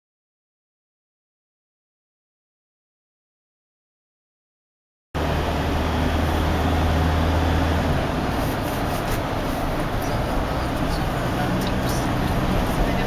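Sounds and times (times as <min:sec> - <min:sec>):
car cabin road and engine drone: 0:05.2 - 0:13.0.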